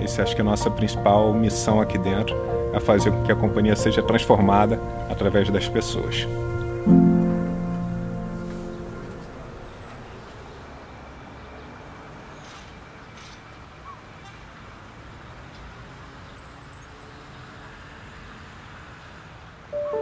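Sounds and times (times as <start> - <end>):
music: 0.0 - 9.8, 19.8 - 20.0
distant traffic rumble: 0.0 - 20.0
port machinery hum: 2.5 - 10.1.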